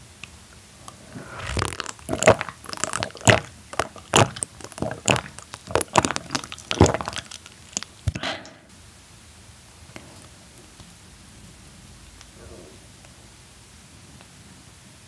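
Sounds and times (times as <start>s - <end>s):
wet swallows: 0.9s - 8.7s.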